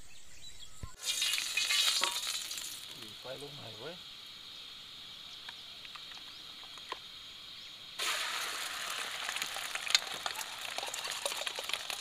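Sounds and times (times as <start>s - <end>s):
egg sizzling in hot oil: 1.0s - 3.3s, 8.0s - 12.0s.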